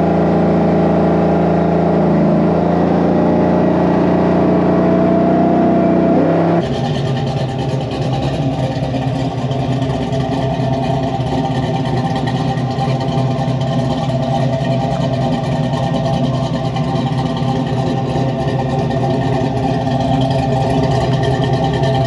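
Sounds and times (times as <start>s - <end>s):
engine idling: 6.1s - 22.0s.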